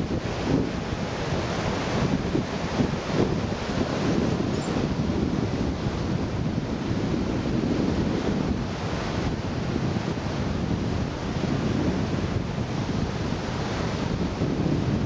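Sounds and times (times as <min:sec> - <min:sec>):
surf washing on shore: 0:00.0 - 0:15.0
wind buffeting microphone: 0:00.0 - 0:15.0.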